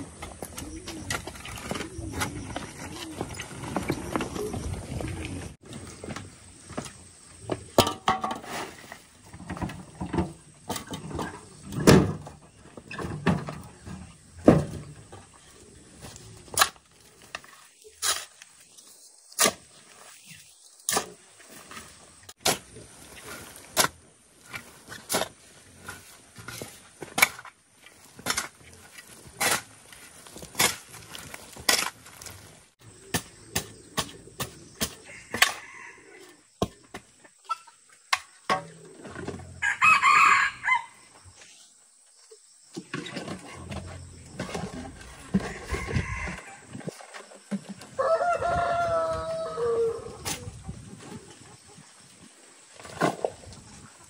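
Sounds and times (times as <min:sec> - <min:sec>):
earth tipped from wheelbarrow: 0:07.8 - 0:15.2
metal shovel scraping dry soil: 0:08.1 - 0:09.9, 0:15.1 - 0:35.6.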